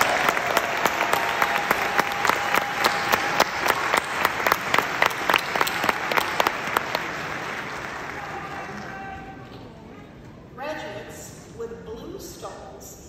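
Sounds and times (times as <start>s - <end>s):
sharp regular claps: 0.0s - 8.9s
audience applauding: 0.0s - 9.5s.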